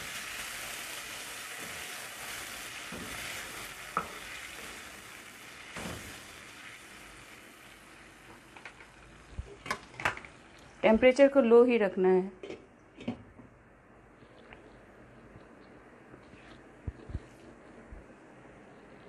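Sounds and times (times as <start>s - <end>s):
curry sizzling in frying pan: 0.0s - 10.9s.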